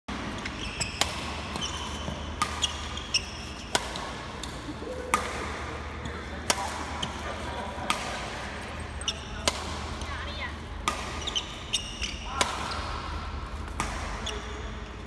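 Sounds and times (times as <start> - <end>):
racket hitting shuttlecock: 0.1 - 7.2, 7.8 - 8.5, 9.4 - 10.1, 10.8 - 14.8
low hum in hall: 0.1 - 15.0
shoes squeaking on court: 0.2 - 4.2, 8.4 - 9.4, 10.0 - 15.0.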